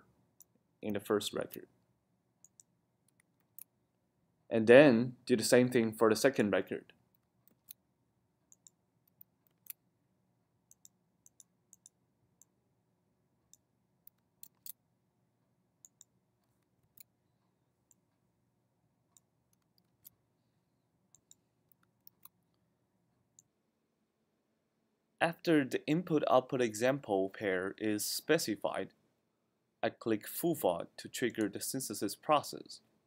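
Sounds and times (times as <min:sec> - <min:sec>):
low room hum: 0:00.0 - 0:33.0
mouse and keyboard clicks: 0:08.5 - 0:09.8, 0:13.5 - 0:14.8, 0:21.1 - 0:22.4.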